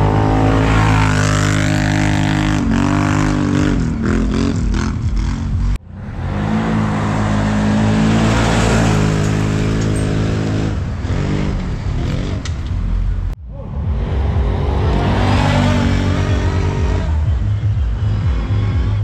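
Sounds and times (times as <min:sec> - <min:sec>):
engine revving hard: 0:06.2 - 0:12.5, 0:13.8 - 0:19.0.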